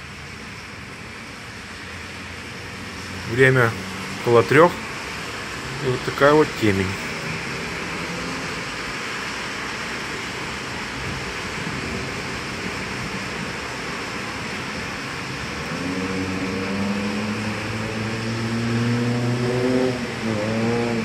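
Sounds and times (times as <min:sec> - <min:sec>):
traffic hiss on wet road: 0:00.0 - 0:21.0
car engine accelerating: 0:15.0 - 0:21.0.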